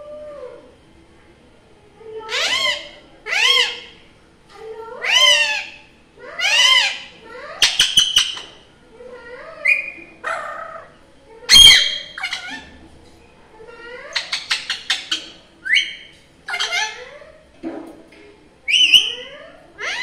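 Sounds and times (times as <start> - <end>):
parakeet squawking and chattering: 2.2 - 4.0, 5.0 - 8.6, 9.3 - 12.8, 13.7 - 17.3, 18.7 - 20.0.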